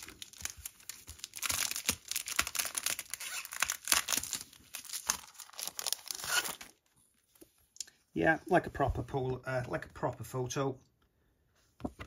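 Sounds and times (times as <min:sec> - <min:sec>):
paper crinkling and rustling: 0:00.0 - 0:07.6.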